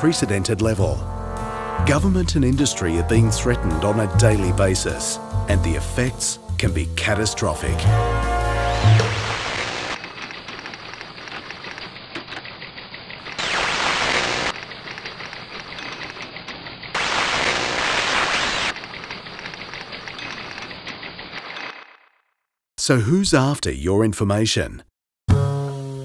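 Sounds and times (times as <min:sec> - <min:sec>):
static-like crackling: 0:08.8 - 0:16.2, 0:16.8 - 0:21.8
bursts of hiss: 0:13.3 - 0:14.6, 0:17.0 - 0:18.8.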